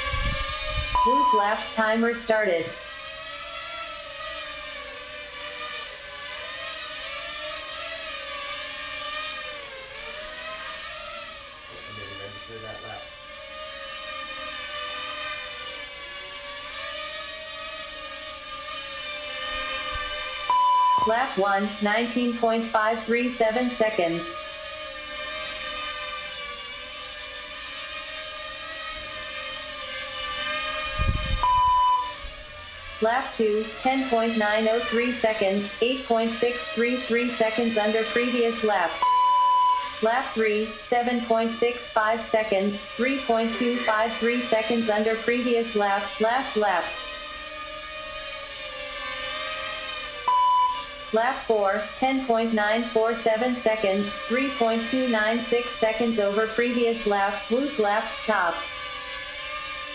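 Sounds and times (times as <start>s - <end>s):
quadcopter motors whining: 0.0s - 59.9s
high electronic beep: 1.0s - 1.5s, 20.5s - 21.2s, 31.4s - 32.2s, 39.0s - 39.9s, 50.3s - 50.8s.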